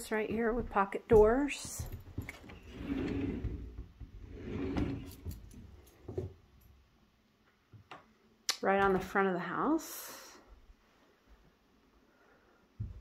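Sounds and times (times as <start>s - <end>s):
sliding door rolling on track: 2.6s - 5.4s.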